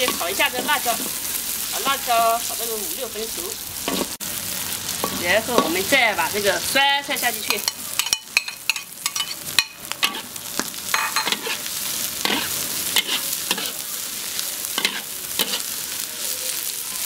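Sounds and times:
metal spatula scraping wok: 0.0s - 1.3s, 3.8s - 4.2s, 7.2s - 15.8s
greens sizzling in hot oil: 0.0s - 17.0s.

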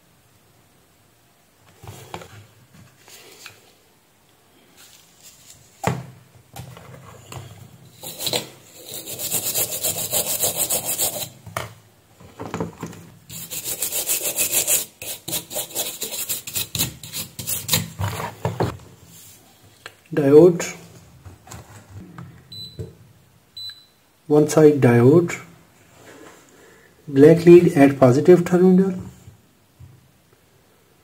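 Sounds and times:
brush scrubbing circuit board: 8.0s - 11.4s, 13.3s - 17.8s.

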